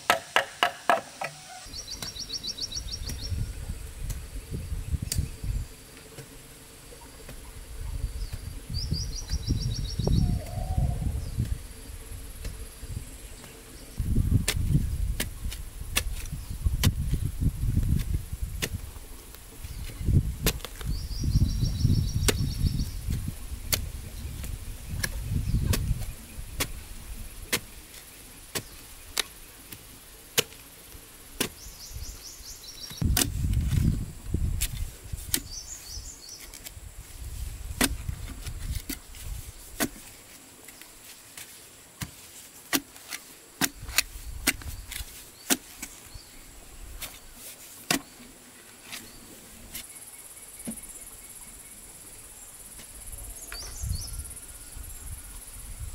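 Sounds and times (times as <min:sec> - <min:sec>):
digging tool striking soil: 0:00.0 - 0:02.3, 0:14.4 - 0:21.0, 0:21.8 - 0:26.8, 0:27.4 - 0:30.7, 0:31.4 - 0:31.8, 0:32.8 - 0:35.6, 0:37.6 - 0:46.2, 0:47.0 - 0:48.2.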